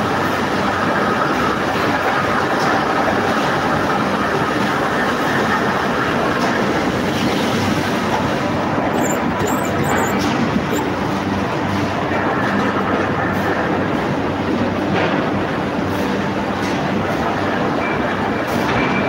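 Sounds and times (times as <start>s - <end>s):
mill machinery running: 8.0s - 11.7s.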